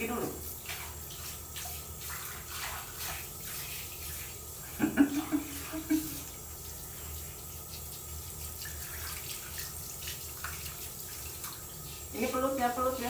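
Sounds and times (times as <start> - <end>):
shower water spraying: 0.0 - 13.0.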